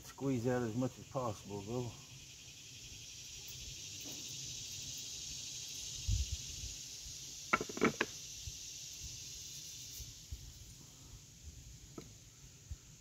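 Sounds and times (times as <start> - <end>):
insect chorus: 0.0 - 13.0
sharp wooden clicks: 7.5 - 8.2.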